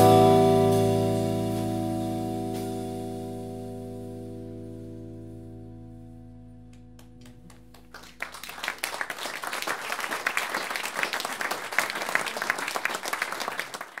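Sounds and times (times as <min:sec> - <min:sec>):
jazz trio held chord: 0:00.0 - 0:07.8
audience applause: 0:07.2 - 0:14.0.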